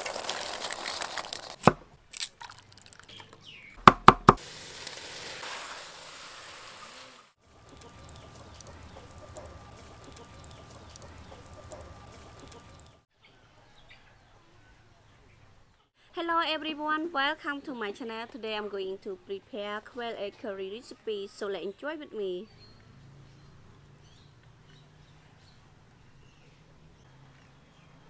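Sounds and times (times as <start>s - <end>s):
water pouring and splashing: 0.0s - 3.2s, 4.3s - 13.0s
crackling wood fire: 0.0s - 13.0s.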